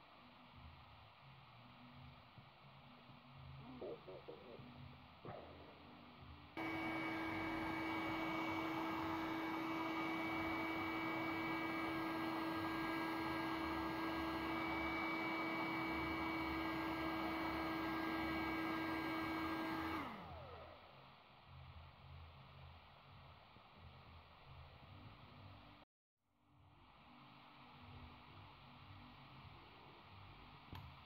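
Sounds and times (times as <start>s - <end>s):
heat gun fan whirring: 6.6s - 20.9s.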